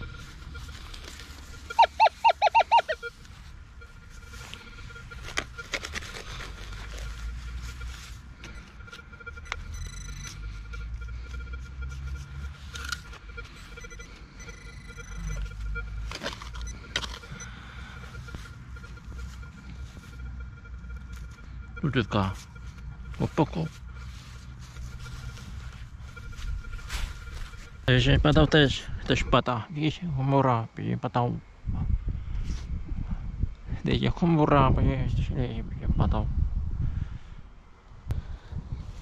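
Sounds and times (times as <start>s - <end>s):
metal detector beeps: 0.0s - 29.3s.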